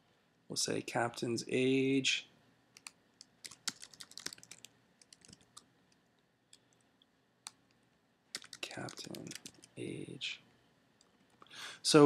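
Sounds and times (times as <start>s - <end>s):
keyboard key clicks: 8.4s - 9.7s.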